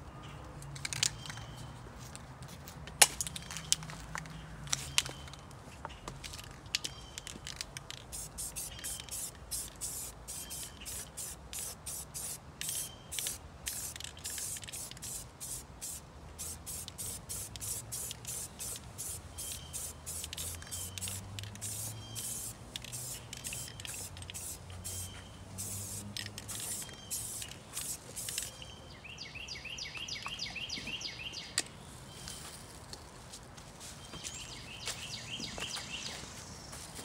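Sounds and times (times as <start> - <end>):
spray paint hissing bursts: 7.2 - 28.6.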